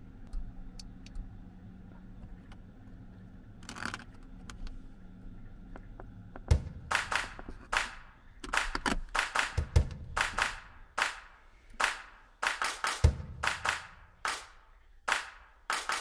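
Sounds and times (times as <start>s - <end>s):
ventilation fans humming: 0.0s - 16.0s.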